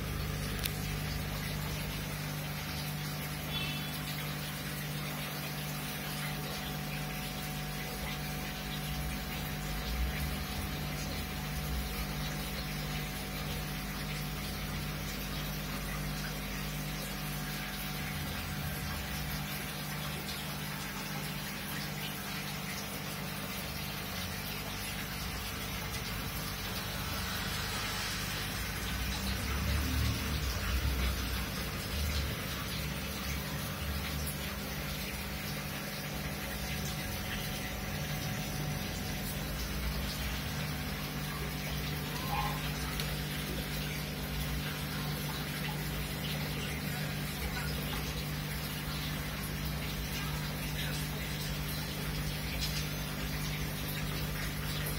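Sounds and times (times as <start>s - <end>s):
aquarium air bubbler bubbling: 0.0s - 54.9s
pump humming: 0.0s - 54.9s
low hum: 24.6s - 32.2s.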